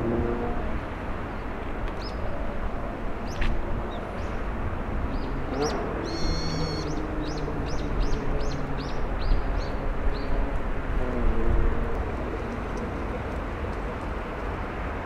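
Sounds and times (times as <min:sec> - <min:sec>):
gulls calling: 0:05.1 - 0:08.2.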